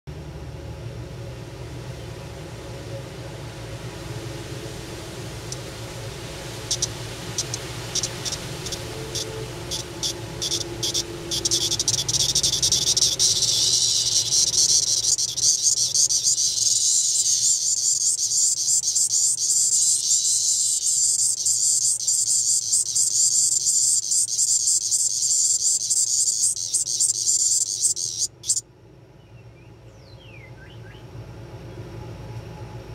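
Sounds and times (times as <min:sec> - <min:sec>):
cicada pulsing song: 0:02.6 - 0:28.6
cicada ticks: 0:05.4 - 0:05.7, 0:06.6 - 0:28.6.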